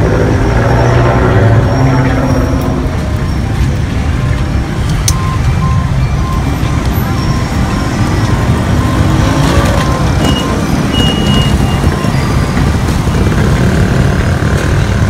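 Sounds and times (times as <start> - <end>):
traffic rumble: 0.0 - 15.0
motorcycles passing close by: 7.9 - 15.0.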